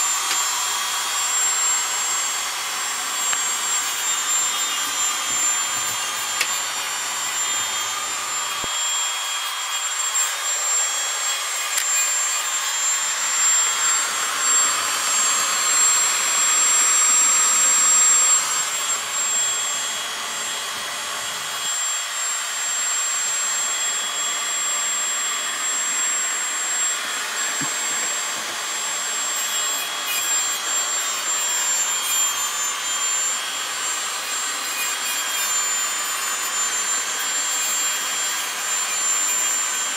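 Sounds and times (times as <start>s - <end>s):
machine whine over hiss: 0.0s - 39.9s.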